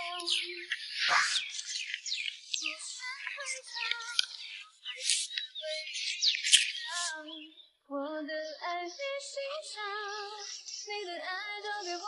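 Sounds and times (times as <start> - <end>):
woman singing slow melody: 0.0 - 0.8, 2.6 - 4.4, 6.9 - 12.0
birds chirping: 0.0 - 12.0.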